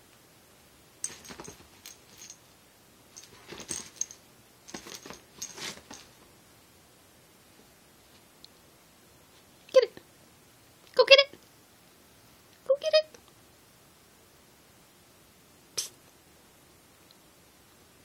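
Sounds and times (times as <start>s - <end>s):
light metallic jingling: 1.0s - 2.5s, 3.1s - 6.3s.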